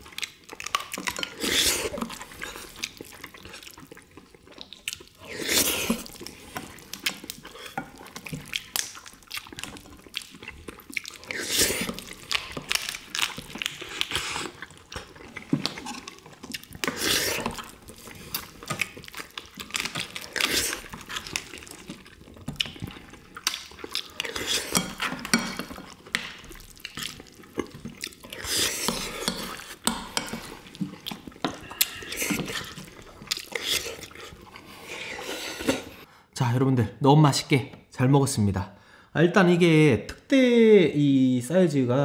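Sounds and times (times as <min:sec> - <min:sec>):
wet chewing and lip-smacking: 0:00.0 - 0:36.1.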